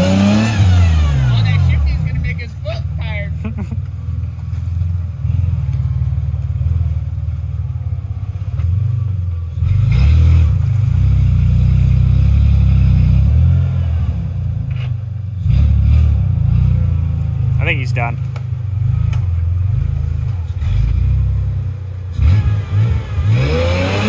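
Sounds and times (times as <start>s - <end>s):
truck engine revving: 0.0s - 3.8s, 9.5s - 24.0s.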